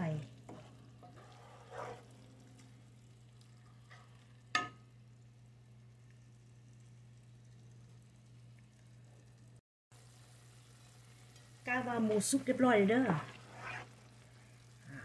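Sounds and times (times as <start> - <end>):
wooden spoon stirring: 0.0 - 2.3, 13.0 - 14.0
meat sizzling in a frying pan: 9.9 - 15.0.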